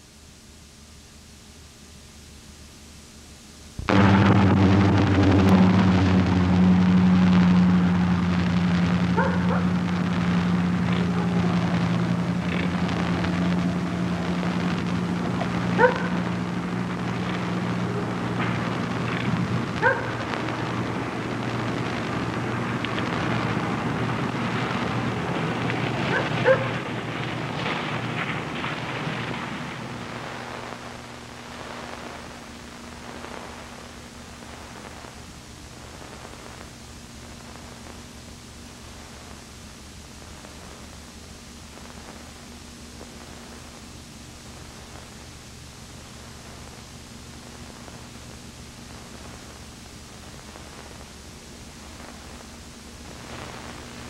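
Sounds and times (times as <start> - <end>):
steady hiss: 0.0 - 54.0
low hum: 2.5 - 54.0
dog barking: 9.2 - 9.8, 15.8 - 16.2, 19.8 - 20.2, 26.1 - 26.8.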